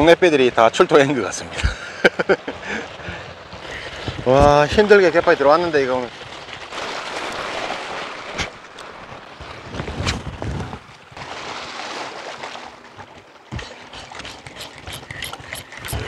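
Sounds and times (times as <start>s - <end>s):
sea ambience: 0.0s - 16.0s
wind buffeting microphone: 9.4s - 11.2s.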